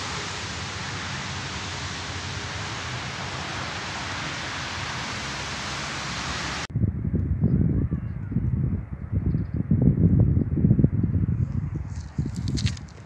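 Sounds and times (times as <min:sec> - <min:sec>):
steady hiss: 0:00.0 - 0:06.7.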